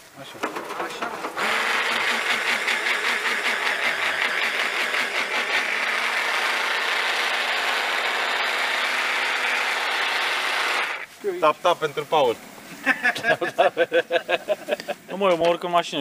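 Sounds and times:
immersion blender motor whine: 1.4s - 11.1s.

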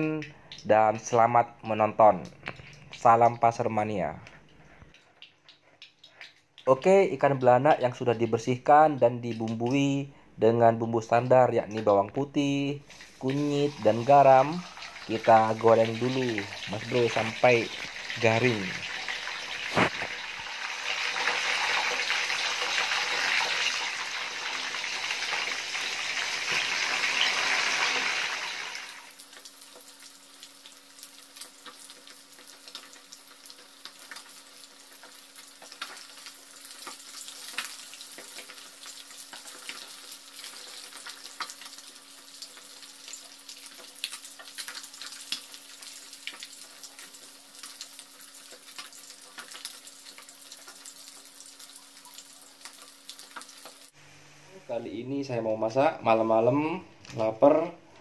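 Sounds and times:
oil popping and crackling: 4.4s - 9.9s, 12.9s - 54.0s
fish sizzling in hot oil: 13.0s - 54.0s.

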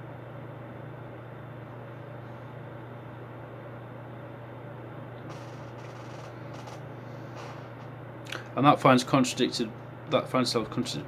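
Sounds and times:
low hum: 0.0s - 8.6s.

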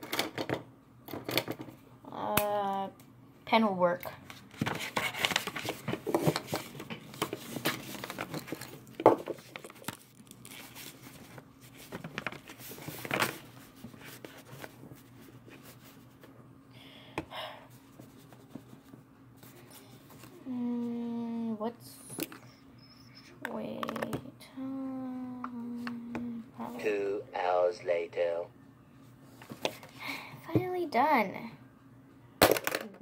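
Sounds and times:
paper rustling and crinkling: 4.4s - 16.2s.

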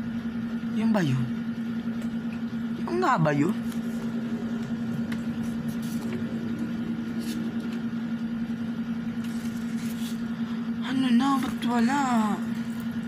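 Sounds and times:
air conditioner humming: 0.0s - 13.0s
paper pages rustling: 7.1s - 7.8s, 9.2s - 10.3s.

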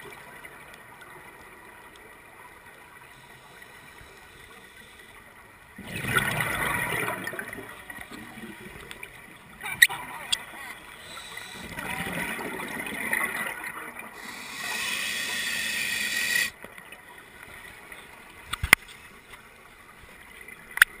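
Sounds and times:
regulator inhalation hiss: 11.0s - 11.7s, 14.2s - 16.6s.

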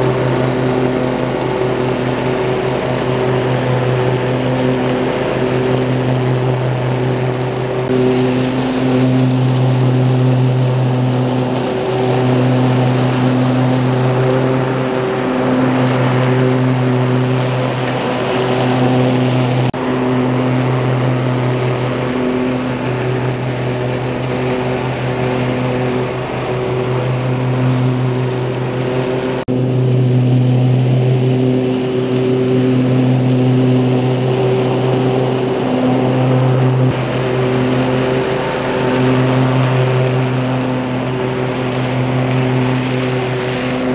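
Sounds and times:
ride-on mower running: 0.0s - 43.9s
dry leaves blowing out: 2.9s - 43.9s.

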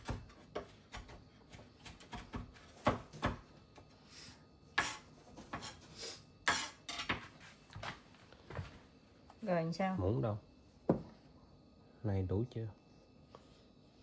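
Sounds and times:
knife scraping cutting board: 4.8s - 5.9s, 6.5s - 7.1s.

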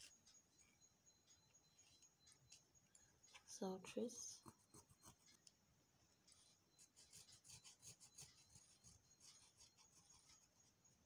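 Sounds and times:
pencil scratching on fabric: 4.2s - 5.5s, 6.2s - 11.0s.

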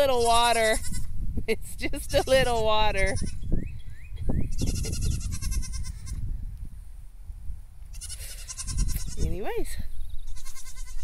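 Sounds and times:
goats bleating: 7.9s - 9.2s, 10.3s - 11.0s.

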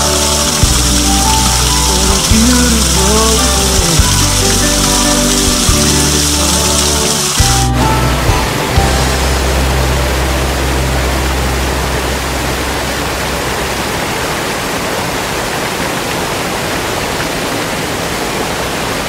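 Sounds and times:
low hum: 0.0s - 14.4s
waterfall rushing: 0.0s - 19.0s.

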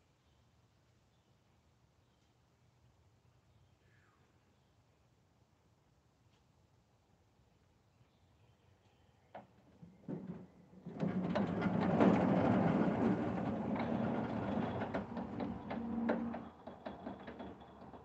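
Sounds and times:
sawmill head rolling on rails: 9.9s - 18.0s.

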